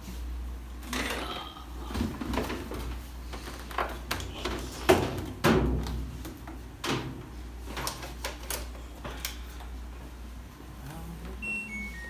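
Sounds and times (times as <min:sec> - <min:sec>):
washing machine cabinet thuds: 0:04.5 - 0:07.2.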